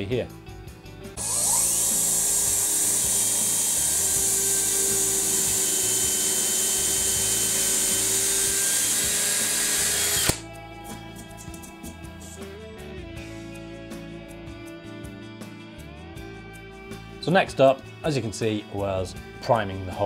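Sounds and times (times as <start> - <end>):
cordless drill boring through plywood: 1.2 - 10.4.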